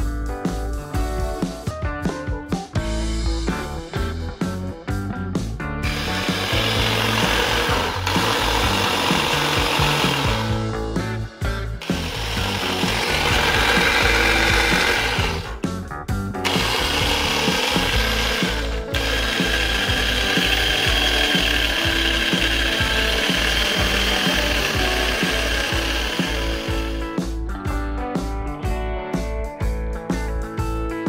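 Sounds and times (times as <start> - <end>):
hand blender motor whining: 5.8 - 10.8, 11.8 - 15.6, 16.4 - 27.2.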